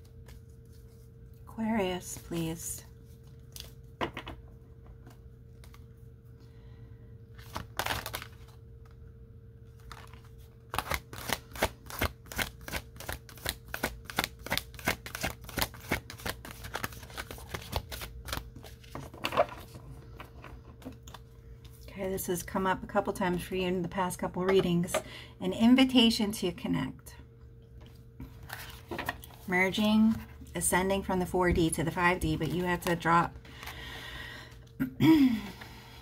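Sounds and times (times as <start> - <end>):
cards being shuffled: 0.0 - 1.2, 7.4 - 9.0, 9.7 - 19.8
faint steady hum: 0.0 - 36.0.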